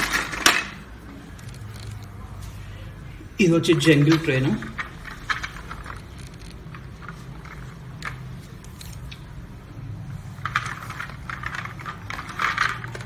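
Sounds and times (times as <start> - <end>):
plastic toy clicking and rattling: 0.0 - 2.1, 3.7 - 8.3, 10.4 - 13.0.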